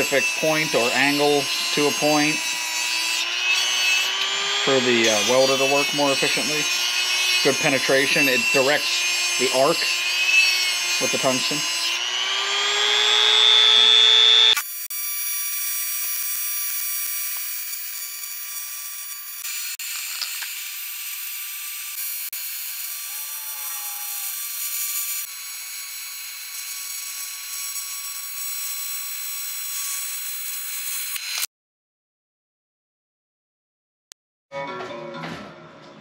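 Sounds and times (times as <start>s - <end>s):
handheld grinder rising in pitch: 0.0s - 31.5s
welding arc buzzing and hissing: 14.5s - 31.4s.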